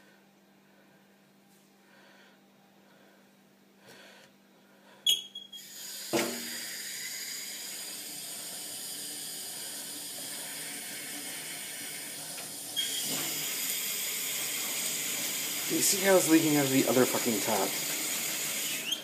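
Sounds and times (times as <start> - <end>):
tap handle squeak: 5.1 - 6.4, 12.8 - 13.3
water gushing into sink: 5.6 - 19.0.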